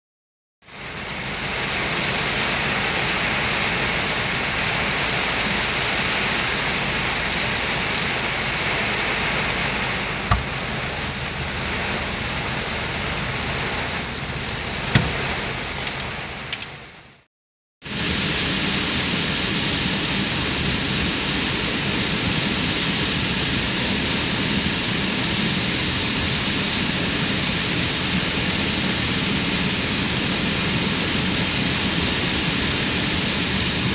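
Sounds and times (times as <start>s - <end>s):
river pouring over a weir: 0.6s - 17.2s, 17.8s - 33.9s
heavy rain drumming on a car: 0.6s - 33.9s
sharp knocks: 10.3s - 10.6s.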